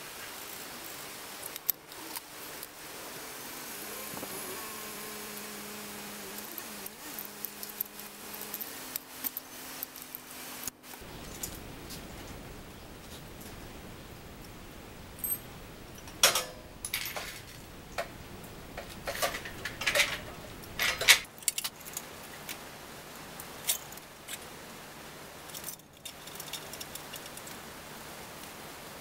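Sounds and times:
bicycle wheel parts clinking: 0:15.2 - 0:22.5.

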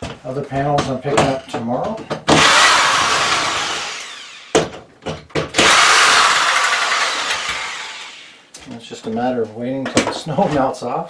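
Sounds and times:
cordless drill whirring: 0:02.3 - 0:04.7, 0:05.6 - 0:08.4.

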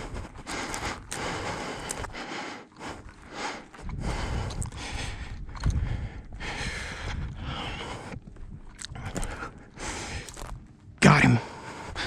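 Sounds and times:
footsteps crunching on rocky dirt: 0:02.8 - 0:12.0.

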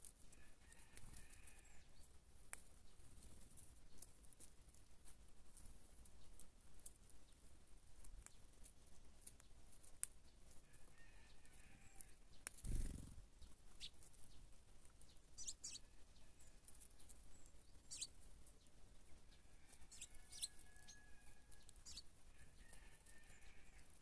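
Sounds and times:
beaks pecking at kernels: 0:00.0 - 0:24.0
sparrows chirping: 0:08.2 - 0:24.0.

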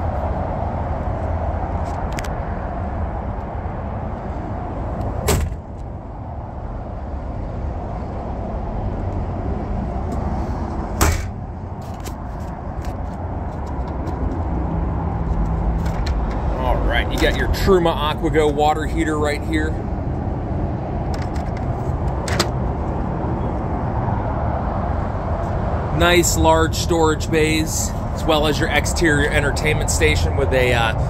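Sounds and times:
compartment doors slamming: 0:05.2 - 0:05.6, 0:11.0 - 0:11.4.

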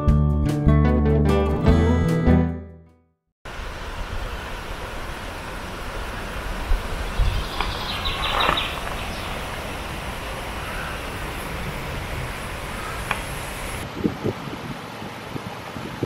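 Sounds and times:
river flowing over pebbles: 0:03.5 - 0:13.9.

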